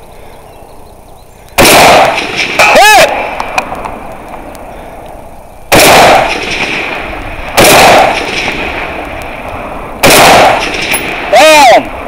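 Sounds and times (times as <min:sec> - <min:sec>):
rifle shots with echo: 0:01.6 - 0:03.9, 0:05.7 - 0:12.0.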